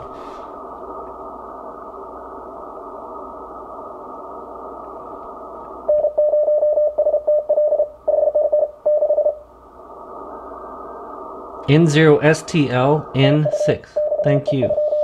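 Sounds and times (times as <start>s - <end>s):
radio static hiss: 0.0s - 15.0s
morse code tone: 13.4s - 15.0s.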